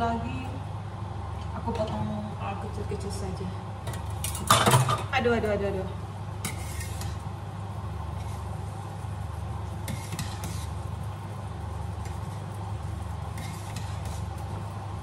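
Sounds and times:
cooker hood fan humming: 0.0 - 15.0
spoon scraping a steel pot: 6.4 - 7.2, 9.8 - 10.8, 13.3 - 14.4.

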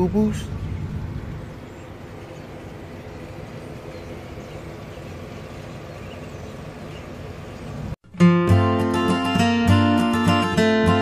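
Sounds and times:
engine and cabin noise: 0.0 - 8.0
strummed acoustic guitar music: 8.1 - 11.0.

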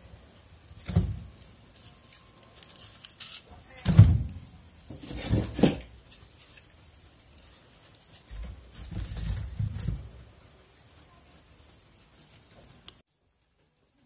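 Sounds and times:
logs knocking and scraping in stove: 2.6 - 10.4.

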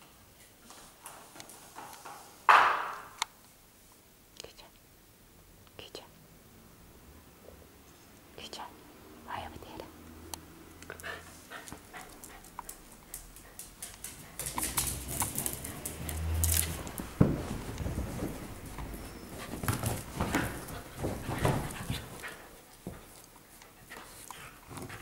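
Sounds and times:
sharp knock: 2.5 - 3.2
dogs play-fighting: 10.6 - 25.0
scuffling on cushions: 16.2 - 23.1.

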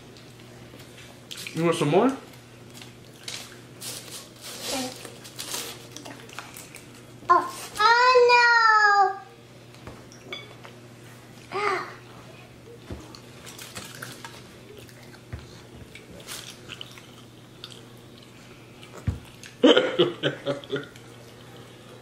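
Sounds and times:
person chewing: 13.1 - 19.6.

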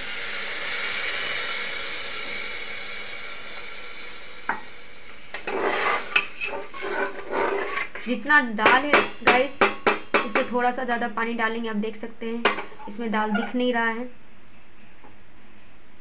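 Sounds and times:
water sizzling in hot pot: 0.0 - 8.0
metal ladle scraping pot: 5.3 - 9.2, 12.6 - 13.7.

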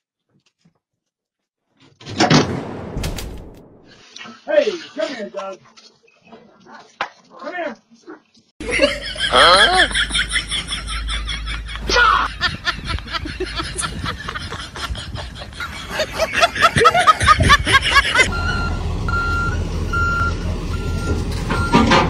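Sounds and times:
heavy vehicle engine running: 18.0 - 22.0
backup alarm beeping: 18.3 - 21.9.

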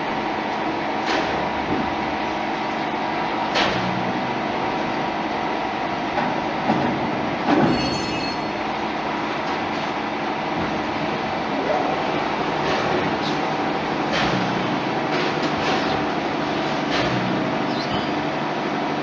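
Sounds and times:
machine humming and whining: 0.0 - 19.0
high metal squeal: 7.7 - 8.6, 17.7 - 18.2.

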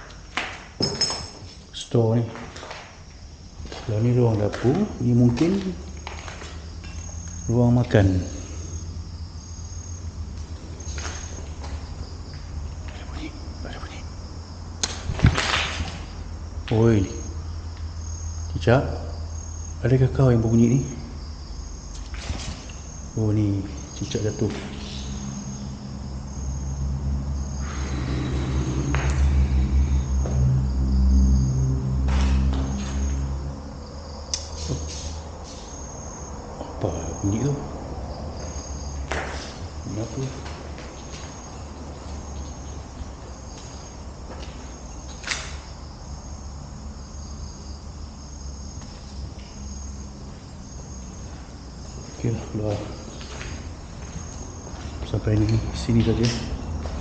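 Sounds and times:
insects chirping: 0.0 - 57.0
low engine hum: 22.8 - 47.0.

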